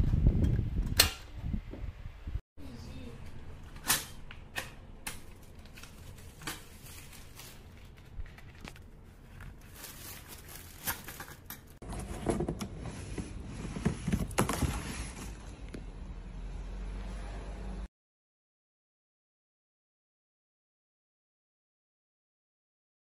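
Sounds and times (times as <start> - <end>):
handling noise with rustles: 3.5 - 15.9.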